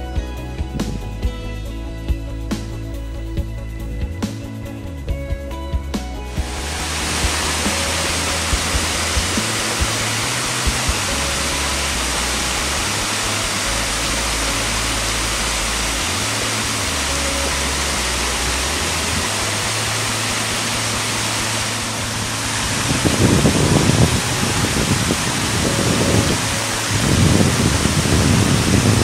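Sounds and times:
stream running over stones: 6.4s - 29.0s
water pouring over weir: 6.4s - 29.0s.

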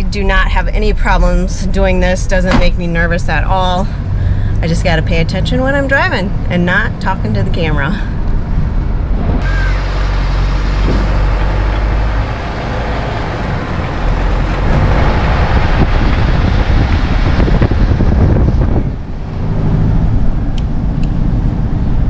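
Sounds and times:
van engine: 0.0s - 22.0s
wind noise on microphone: 7.7s - 9.7s, 13.3s - 22.0s.

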